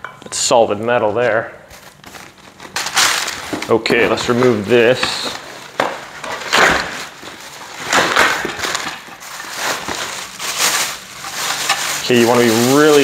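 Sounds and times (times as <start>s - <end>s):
plastic packaging crinkling: 1.7s - 13.0s.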